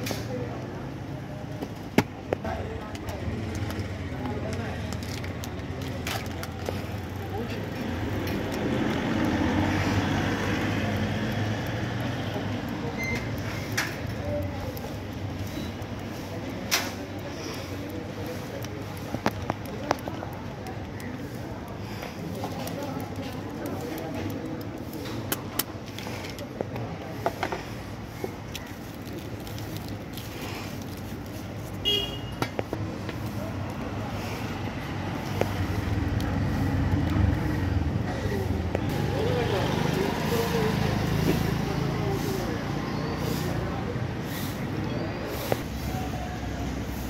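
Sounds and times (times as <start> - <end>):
street traffic noise: 0.0 - 47.0
light clicks and taps: 1.6 - 31.3.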